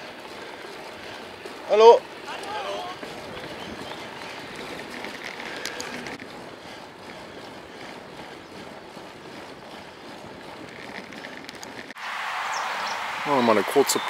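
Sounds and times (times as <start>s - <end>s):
bicycle tyres rolling on asphalt: 0.0s - 14.0s
wind rushing on microphone: 2.6s - 6.5s.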